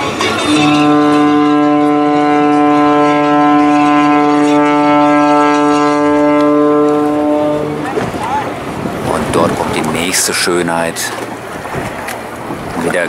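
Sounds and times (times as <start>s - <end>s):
ship's horn blast: 0.0s - 9.0s.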